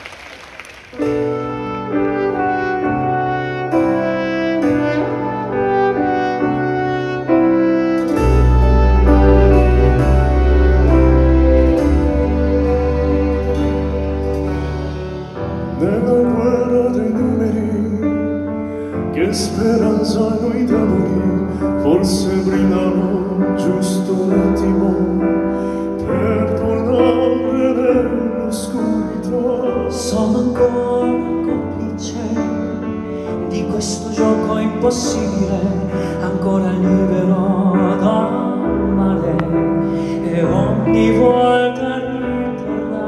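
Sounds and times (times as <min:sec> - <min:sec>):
band with strings: 0:00.9 - 0:43.0.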